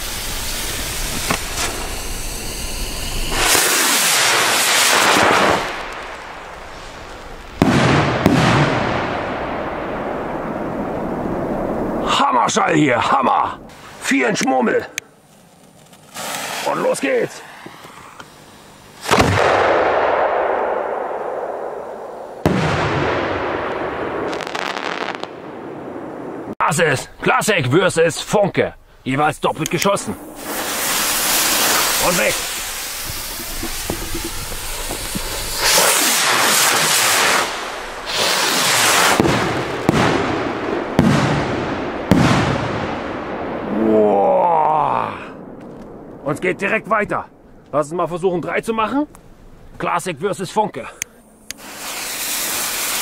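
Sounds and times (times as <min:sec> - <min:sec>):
mortar launch boom: 0:00.0 - 0:12.1, 0:19.0 - 0:26.6, 0:30.0 - 0:47.5
firework crackles: 0:00.0 - 0:12.2, 0:15.1 - 0:26.6, 0:29.0 - 0:47.8, 0:51.3 - 0:53.0.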